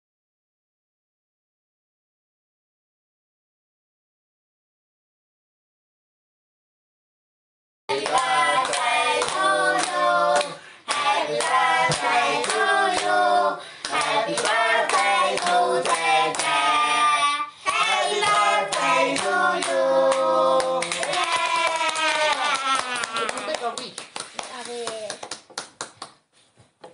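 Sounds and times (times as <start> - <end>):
women and children singing: 7.9 - 20.8
hands clapping in time: 18.2 - 26.2.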